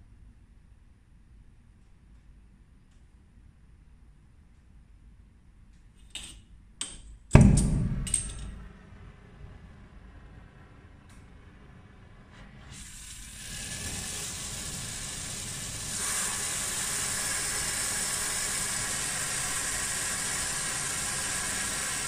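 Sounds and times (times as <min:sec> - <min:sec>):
welding torch flame hissing: 0:12.5 - 0:22.0.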